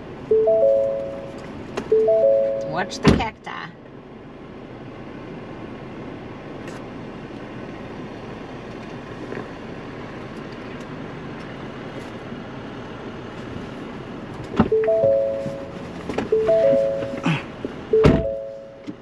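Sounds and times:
low engine hum: 0.0s - 19.0s
tyre and trail noise: 13.4s - 19.0s.

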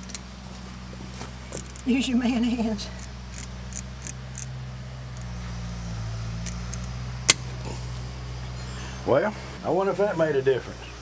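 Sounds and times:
low engine hum: 0.0s - 11.0s
small metal clicks: 3.0s - 5.4s.

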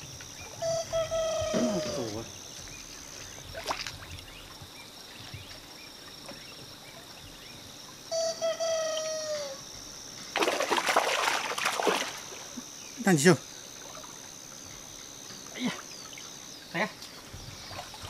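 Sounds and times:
drawn-out bird call: 0.0s - 4.5s
muddy water splashing: 0.0s - 7.1s, 10.2s - 12.8s, 15.6s - 18.0s.

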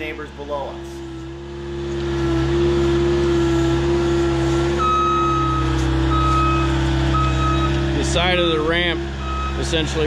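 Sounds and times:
loader engine running: 0.0s - 10.0s
backup alarm beeping: 4.8s - 7.8s, 9.2s - 9.7s.

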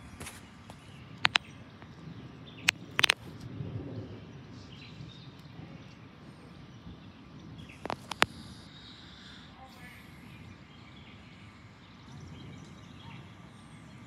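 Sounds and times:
low steady murmur: 0.0s - 14.0s
short sharp clicks: 1.2s - 1.5s.

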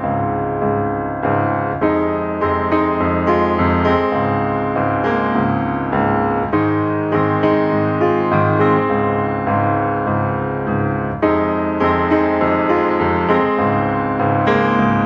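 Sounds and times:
background piano music: 0.0s - 15.0s.

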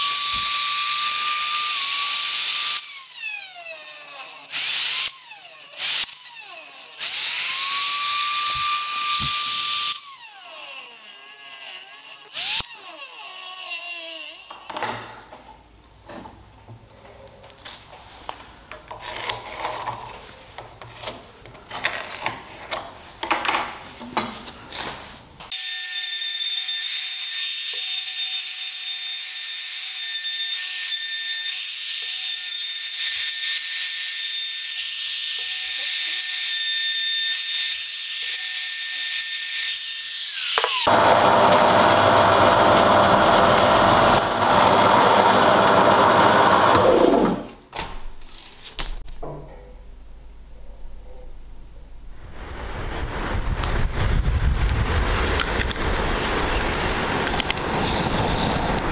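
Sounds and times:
router whining on wood: 0.0s - 14.9s, 25.5s - 47.5s
drill press drilling wood: 40.6s - 47.5s.

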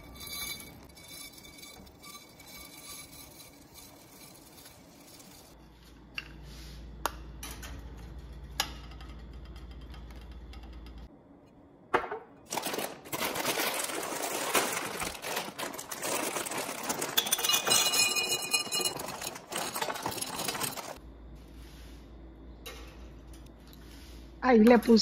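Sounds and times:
dry pasta rattling into glass jar: 12.5s - 21.0s.

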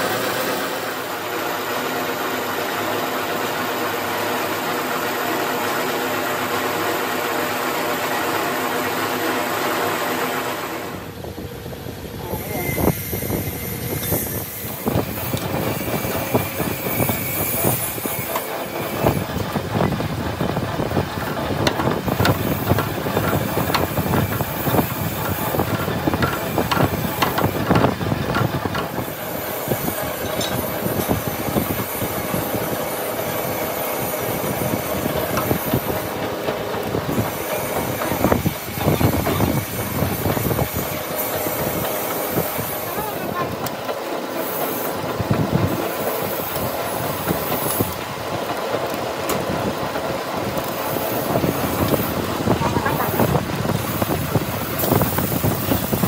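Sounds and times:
lathe machine hum: 0.0s - 56.0s
drill grinding into steel: 12.2s - 19.2s.

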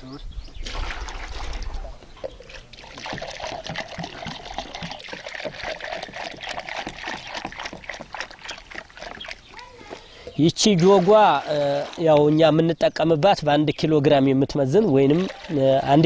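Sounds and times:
water splashing onto straw: 0.6s - 12.1s, 15.0s - 16.0s.

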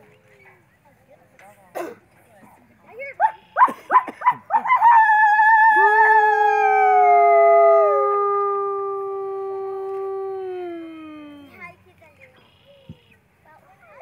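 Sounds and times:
wolf howling: 4.8s - 11.6s
higher wavering howl: 5.0s - 11.5s.

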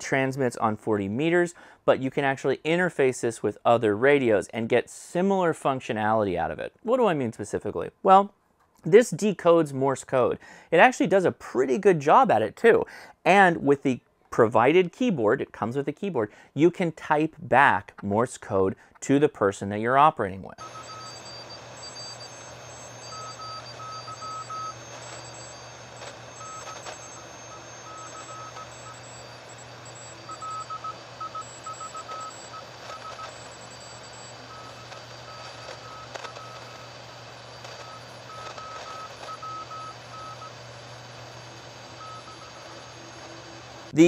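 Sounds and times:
morse code tone: 20.6s - 43.4s
radio band hiss: 20.6s - 44.0s.

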